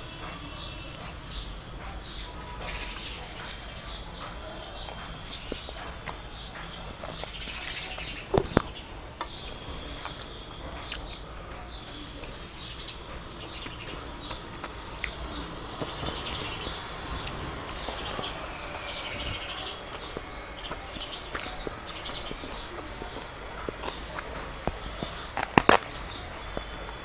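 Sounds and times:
wet chewing and lip-smacking: 13.6s - 15.6s.

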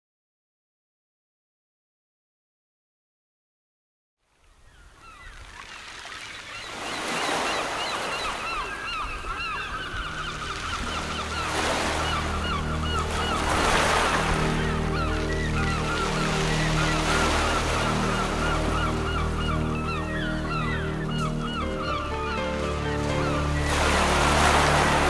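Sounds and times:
gulls calling: 4.6s - 25.0s
sea surf washing: 5.3s - 25.0s.

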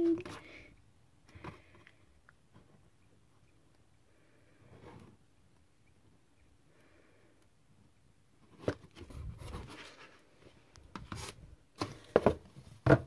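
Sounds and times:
books knocking in cardboard box: 11.8s - 13.0s.

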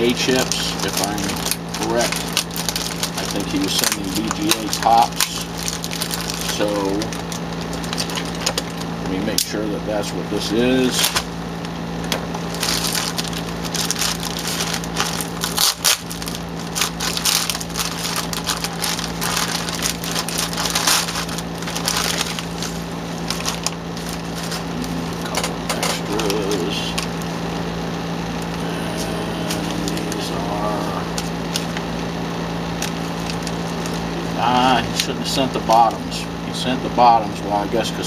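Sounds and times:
aluminium foil crinkling: 0.0s - 9.0s, 10.8s - 11.3s, 12.0s - 27.3s, 29.0s - 32.0s, 32.7s - 34.2s.

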